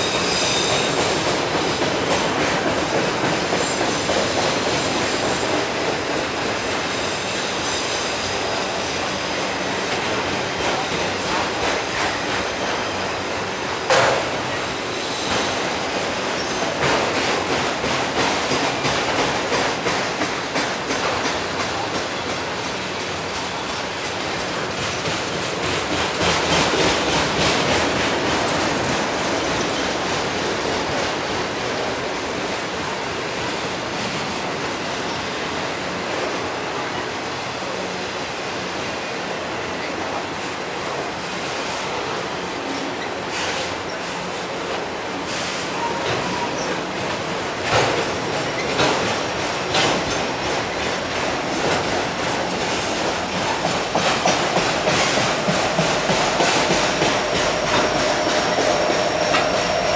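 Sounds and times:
high wheel squeal: 0.0 - 1.1
rhythmic clicking over rail joints: 0.0 - 59.9
train wheels rumbling on rail: 0.0 - 59.9.

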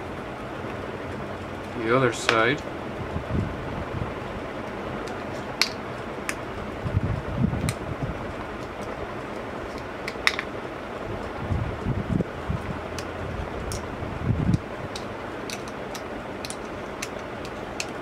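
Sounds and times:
fan-like background hiss: 0.0 - 18.0.

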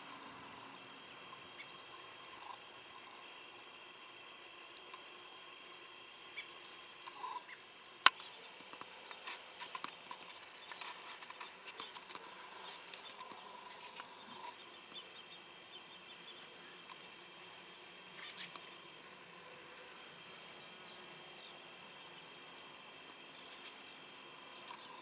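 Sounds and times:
bird chirping: 0.0 - 3.7, 6.1 - 25.0
faint high hum: 0.0 - 25.0
small clicks and crackles: 4.7 - 5.1, 7.0 - 15.0, 24.5 - 25.0.

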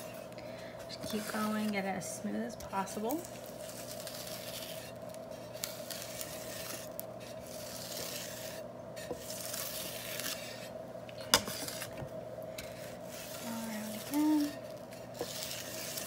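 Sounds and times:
scraper smoothing buttercream: 0.0 - 10.8, 11.4 - 12.0, 12.6 - 16.0.

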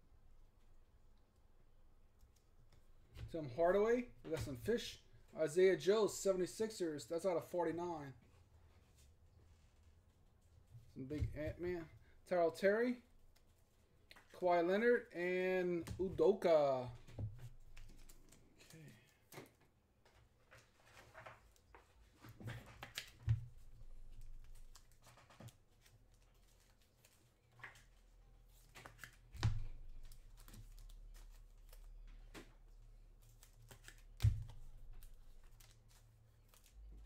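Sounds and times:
cards rustling and clicking: 15.8 - 37.0.

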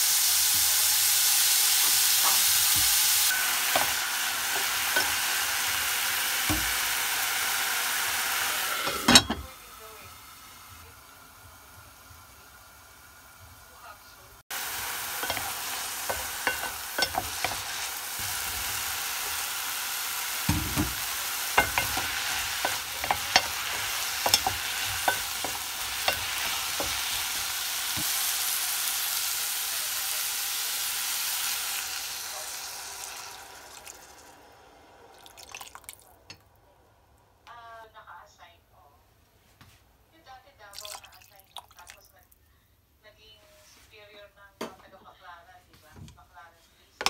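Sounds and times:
vegetables sizzling in a pot: 0.0 - 36.4
wooden spatula scraping a pot: 15.0 - 19.4, 20.6 - 28.2.

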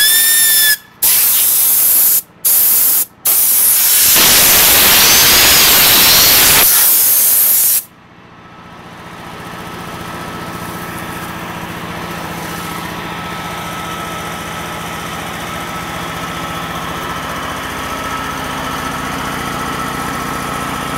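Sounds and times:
compressed air hissing: 0.0 - 7.9
air compressor running: 0.0 - 20.9.

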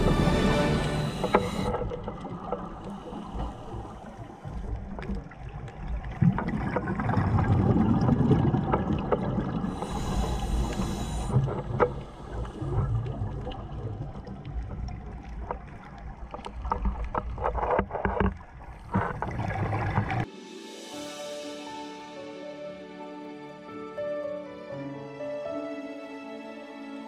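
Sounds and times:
regulator inhalation hiss: 0.0 - 1.8, 2.8 - 4.6, 9.7 - 13.0
underwater bubbles gurgling: 0.0 - 20.3.

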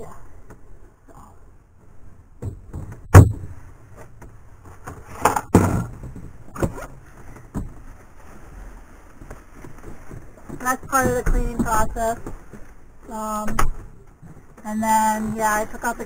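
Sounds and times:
soft knocks and bumps: 2.4 - 8.5, 9.1 - 12.8.

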